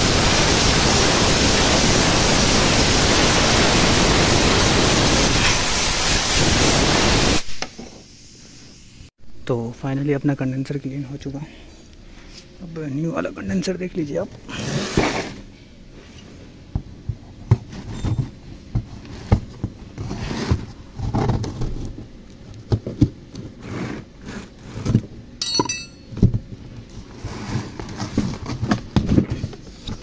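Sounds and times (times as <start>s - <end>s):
cardboard scraping and rustling: 14.5s - 15.5s, 17.5s - 22.2s, 26.9s - 30.0s.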